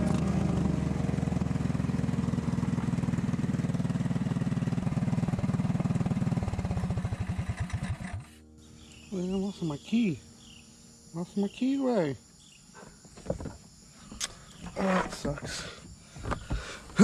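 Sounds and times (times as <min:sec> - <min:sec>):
go-kart engine running: 0:00.0 - 0:08.4.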